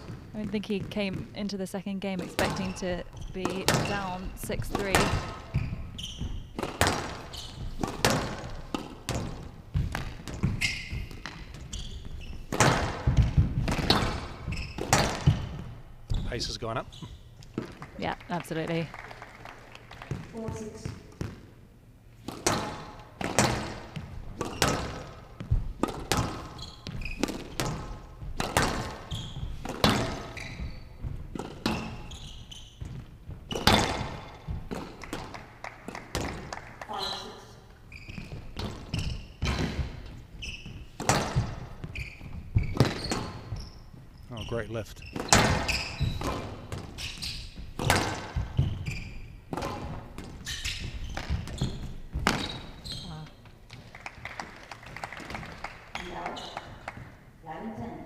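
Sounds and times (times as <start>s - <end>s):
shoes squeaking on court floor: 0.0s - 18.7s, 19.8s - 57.3s
squash ball cracks echoing: 2.2s - 5.6s, 6.5s - 11.7s, 12.5s - 15.9s, 22.3s - 26.5s, 27.2s - 32.0s, 32.8s - 37.0s, 41.0s - 41.8s, 47.7s - 48.8s.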